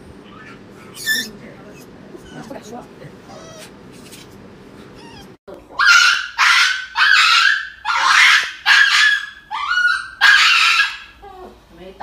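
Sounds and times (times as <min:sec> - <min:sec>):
small dog yelping: 0:00.2 - 0:01.3, 0:02.2 - 0:02.6, 0:03.3 - 0:03.8, 0:05.0 - 0:11.2.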